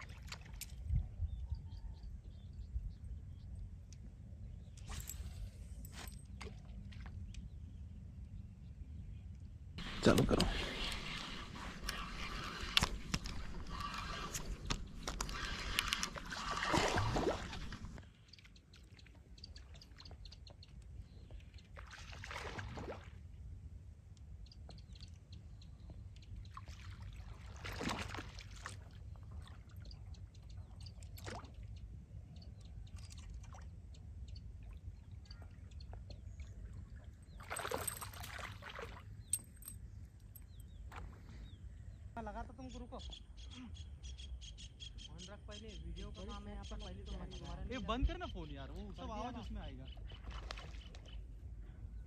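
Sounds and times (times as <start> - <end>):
water splashing: 9.8 - 18.0, 21.8 - 23.2, 26.6 - 28.9, 37.4 - 39.0.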